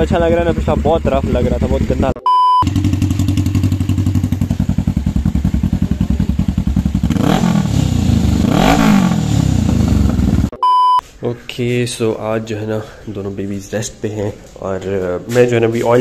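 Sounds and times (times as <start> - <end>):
motorcycle engine idling: 0.0 - 10.5
motorcycle throttle blips: 0.0 - 11.0.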